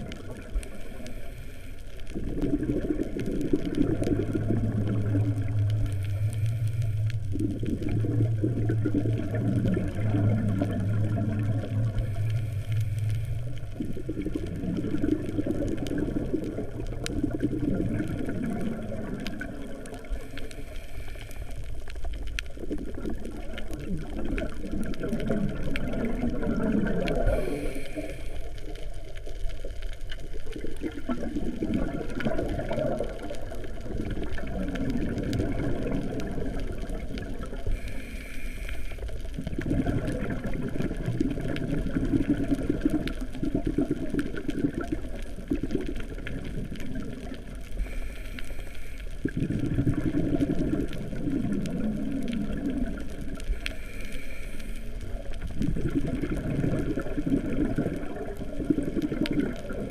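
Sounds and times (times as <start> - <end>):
regulator inhalation hiss: 0.6 - 2.0, 5.9 - 7.2, 12.0 - 13.6, 20.2 - 21.8, 27.2 - 28.7, 37.6 - 39.2, 47.8 - 49.3, 53.5 - 55.4
bubbling exhalation underwater: 2.1 - 6.1, 7.2 - 12.2, 13.5 - 20.2, 22.5 - 27.8, 30.4 - 37.7, 39.4 - 47.7, 49.2 - 53.6, 55.2 - 59.9.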